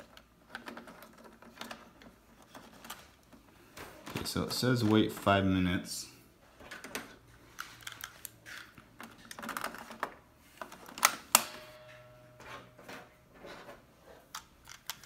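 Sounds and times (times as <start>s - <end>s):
plastic cartridges clicking and rattling: 0.0s - 5.2s, 6.7s - 11.3s, 14.2s - 15.0s.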